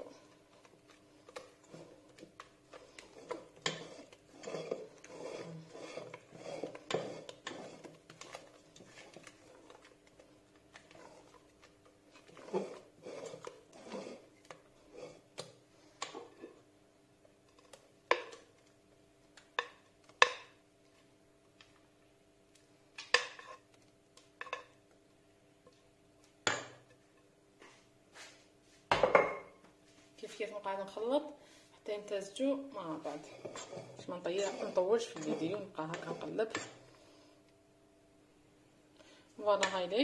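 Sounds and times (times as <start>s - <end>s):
spatula scraping metal bowl: 1.3s - 9.9s, 12.1s - 15.3s, 32.8s - 36.9s.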